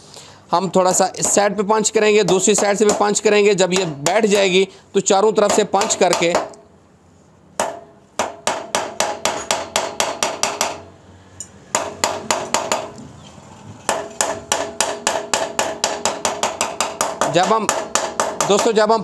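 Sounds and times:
hammer striking steel: 0:07.6 - 0:13.0, 0:13.9 - 0:18.8.

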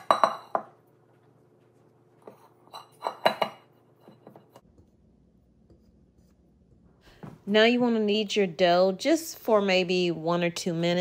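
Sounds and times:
metal bowl clinking and knocking: 0:00.0 - 0:00.8, 0:02.2 - 0:04.6.

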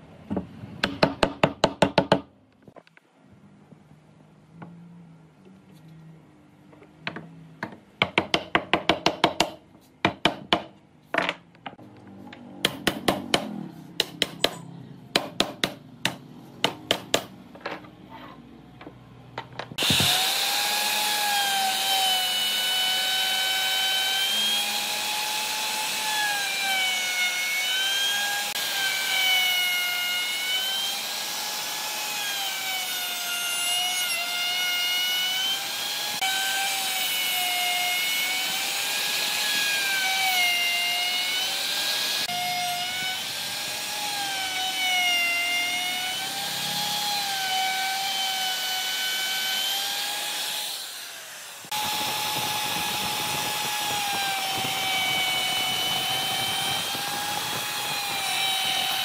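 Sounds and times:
hammer tapping wood: 0:07.1 - 0:11.3, 0:15.2 - 0:17.3
router whining: 0:19.4 - 0:59.0.

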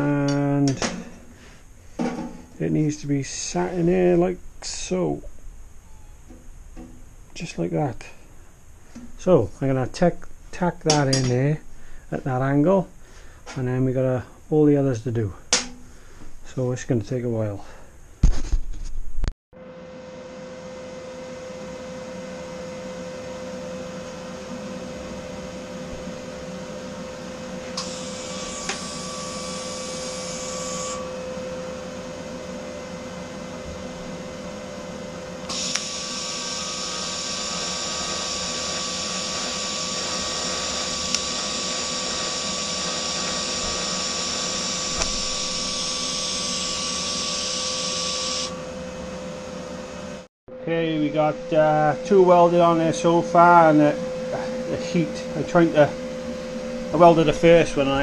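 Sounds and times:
steady low hum: 0:00.0 - 0:18.2, 0:48.5 - 0:58.0
welding arc hiss and whine: 0:00.0 - 0:18.3, 0:19.6 - 0:58.0.

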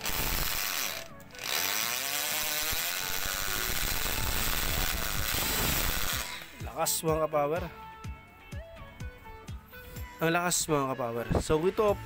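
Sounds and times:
electric drill whining: 0:00.0 - 0:06.6.

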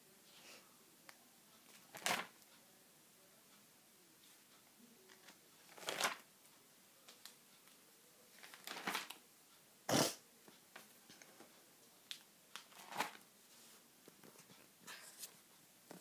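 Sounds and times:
plastic binder pages turning: 0:01.7 - 0:02.4, 0:05.1 - 0:06.2, 0:08.4 - 0:09.2, 0:12.1 - 0:13.2.

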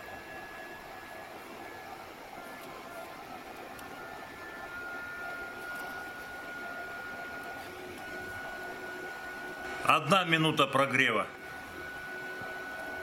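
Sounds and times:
induction heater hiss and whine: 0:00.0 - 0:13.0.

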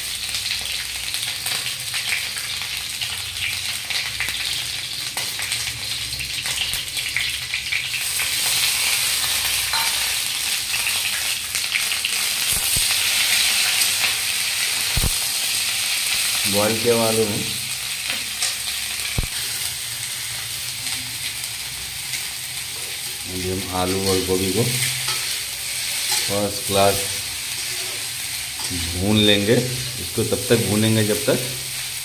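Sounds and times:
vegetables sizzling in oil: 0:00.0 - 0:32.0
spatula scraping and tapping: 0:09.7 - 0:10.0.

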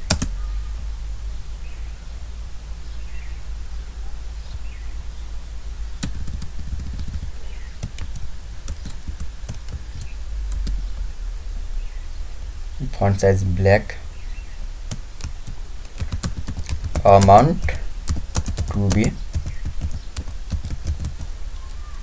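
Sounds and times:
keyboard keys clicking: 0:00.0 - 0:00.3, 0:06.0 - 0:10.8, 0:14.9 - 0:22.0
steady low hum: 0:00.0 - 0:22.0.

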